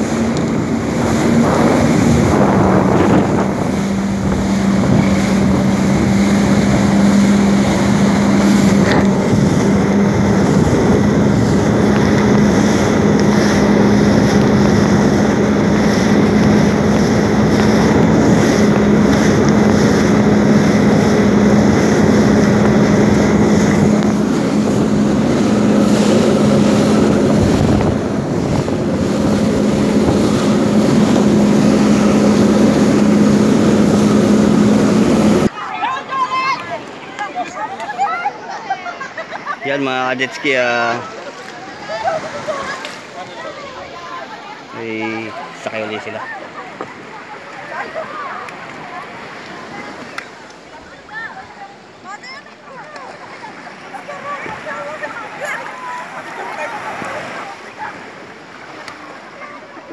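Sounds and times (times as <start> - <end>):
wind on microphone: 0.0 - 35.5
jet ski engine drone: 0.0 - 36.0, 38.0 - 59.9
water rushing past hull: 0.0 - 59.9.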